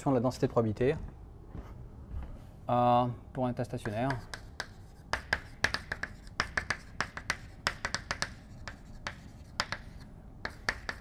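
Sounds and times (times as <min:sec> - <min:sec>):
chalk tapping and scratching: 0:03.4 - 0:11.0.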